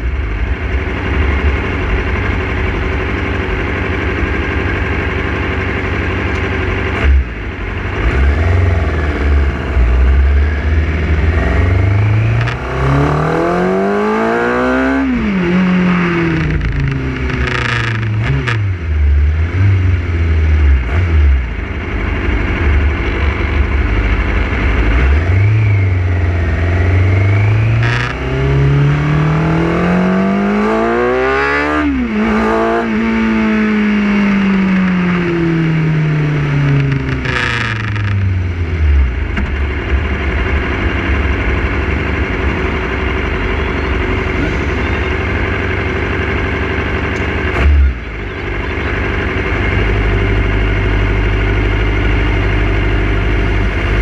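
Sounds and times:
motorcycle engine idling: 0.0 - 8.0, 21.4 - 25.0, 33.8 - 54.0
motorcycle engine revving: 0.0 - 54.0.

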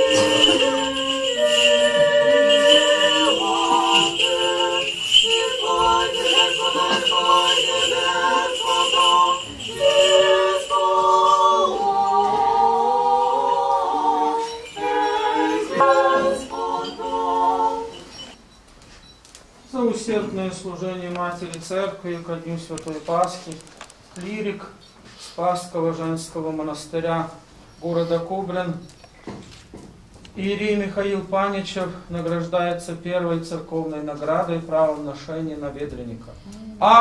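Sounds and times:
choir singing a cappella hymn: 0.0 - 18.4
censer bells jingling: 0.0 - 18.7.

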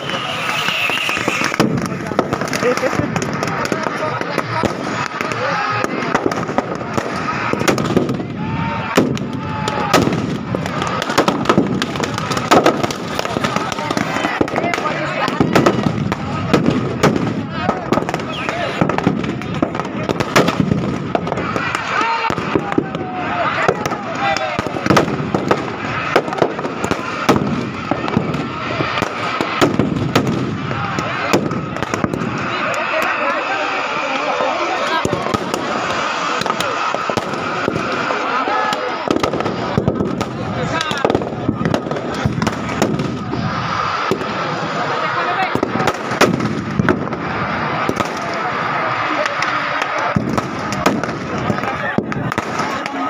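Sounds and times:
fire blazing: 0.0 - 53.0
firecrackers banging: 0.0 - 53.0
large crowd noise: 0.0 - 53.0.

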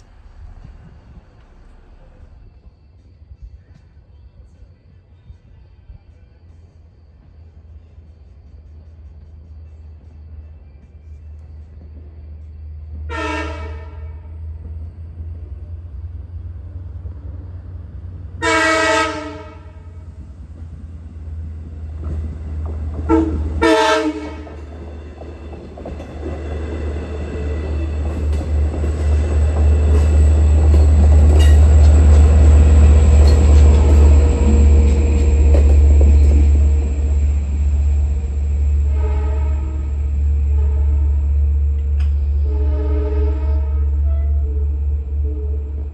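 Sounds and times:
train rumbling past: 0.0 - 45.9
train horn blasts: 13.0 - 14.5, 18.4 - 20.2, 23.0 - 24.7, 38.1 - 45.9.

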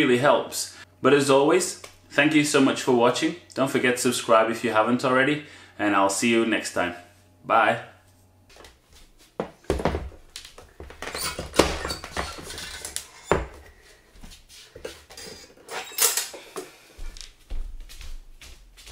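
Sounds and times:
metal highchair clanking: 15.2 - 16.4.

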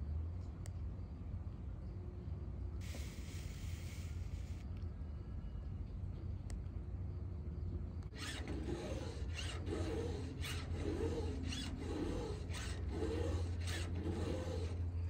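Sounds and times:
steady low hum: 0.0 - 15.0
file rasping on chain: 8.1 - 15.0.

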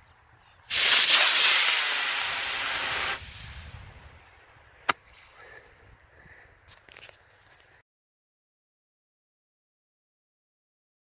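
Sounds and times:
model rocket motor hissing: 0.7 - 3.4
sharp crack: 0.7 - 3.9, 4.8 - 5.4.

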